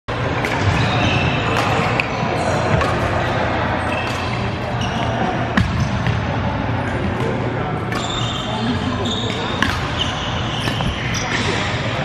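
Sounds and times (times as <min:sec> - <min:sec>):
steady hall hum: 0:00.1 - 0:12.0
racket hitting shuttlecock: 0:00.3 - 0:06.2, 0:09.3 - 0:11.6
sneaker squeaks: 0:00.4 - 0:06.2, 0:06.8 - 0:12.0.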